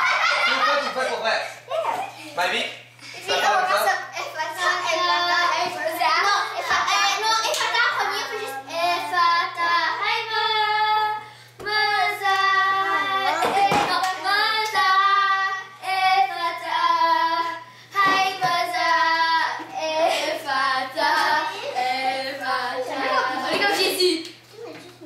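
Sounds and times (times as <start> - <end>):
girls singing together: 4.4 - 24.1.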